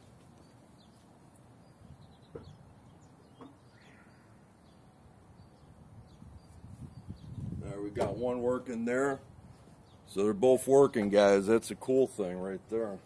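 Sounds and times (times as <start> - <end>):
faint bird chirps: 0.4 - 7.5.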